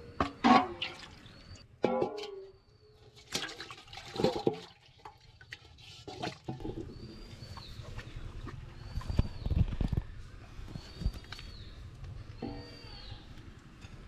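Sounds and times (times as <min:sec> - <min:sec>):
water sloshing in a metal bowl: 0:00.2 - 0:09.2.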